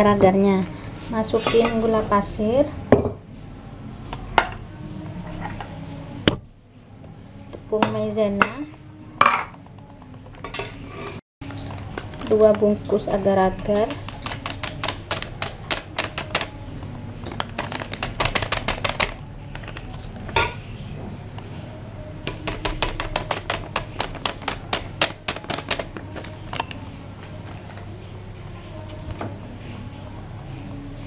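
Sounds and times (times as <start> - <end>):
plastic sachets tapped and shaken: 11.4 - 20.4, 22.2 - 27.8.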